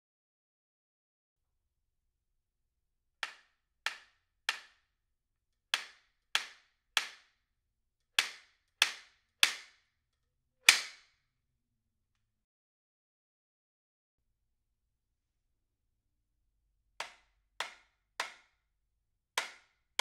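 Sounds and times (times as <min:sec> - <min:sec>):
wooden slapstick cracks: 0:10.7 - 0:11.1.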